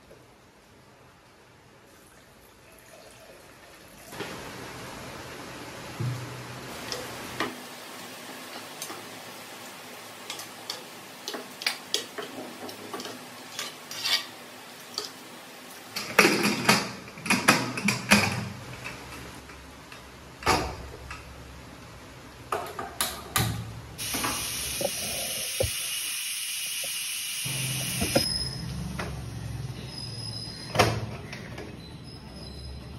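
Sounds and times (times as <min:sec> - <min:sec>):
spoon stirring in a metal pot: 0:11.6 - 0:14.3
steady high hiss: 0:24.0 - 0:28.6.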